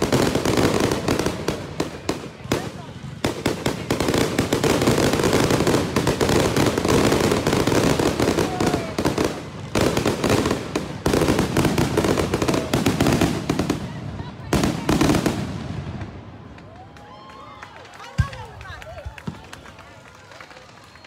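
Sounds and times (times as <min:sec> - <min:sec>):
fireworks crackling: 0:00.0 - 0:17.0.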